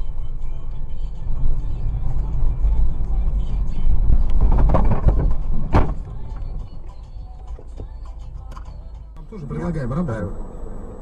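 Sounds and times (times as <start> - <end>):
car rumble on snowy road: 0.0 - 11.0
car collision bang: 4.4 - 6.2.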